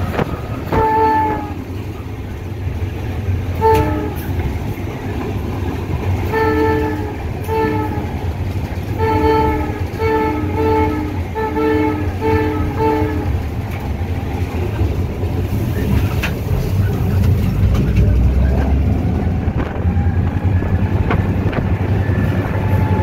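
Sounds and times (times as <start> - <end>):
diesel engine rumble: 0.0 - 23.0
train rolling: 0.0 - 23.0
locomotive horn blasts: 0.6 - 1.7, 3.6 - 4.3, 6.2 - 8.2, 8.9 - 13.4.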